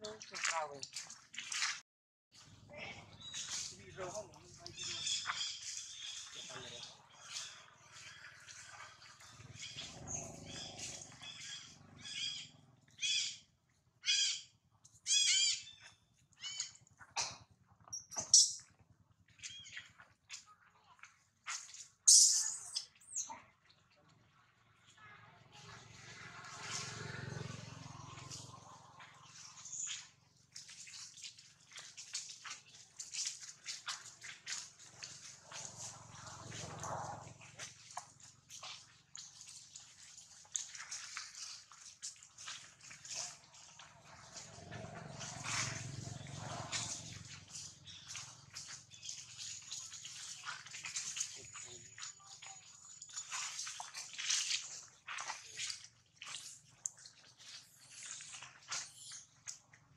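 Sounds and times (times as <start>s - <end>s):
monkey squealing calls: 4.7s - 6.4s, 9.4s - 13.4s, 14.0s - 14.4s, 15.1s - 15.8s, 16.4s - 16.8s, 18.0s - 18.6s, 22.1s - 23.2s.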